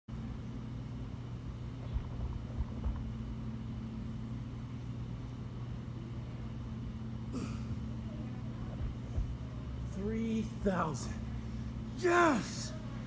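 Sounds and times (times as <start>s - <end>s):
steady low hum: 0.1s - 13.0s
soft low thumps: 1.7s - 3.8s, 8.6s - 9.6s.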